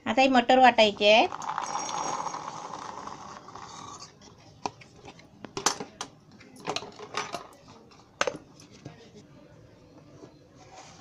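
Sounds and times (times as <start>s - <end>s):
steel bowls clinking: 1.1s - 4.0s.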